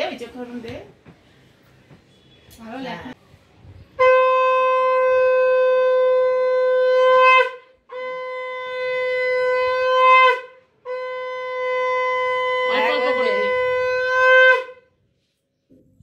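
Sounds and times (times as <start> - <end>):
conch shell blasts: 4.0 - 14.9.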